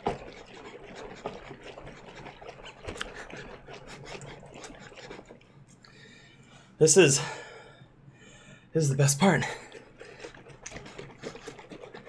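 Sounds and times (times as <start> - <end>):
plastic jug of liquid shaken: 0.0 - 5.4, 9.6 - 12.0.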